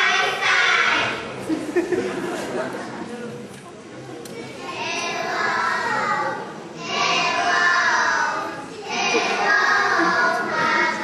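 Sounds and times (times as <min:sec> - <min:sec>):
girls singing together: 0:04.7 - 0:11.0.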